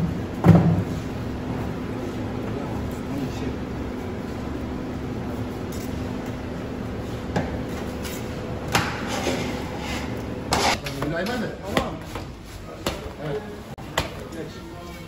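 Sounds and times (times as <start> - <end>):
steady hum: 0.0 - 15.0
food preparation knocks: 13.9 - 14.2.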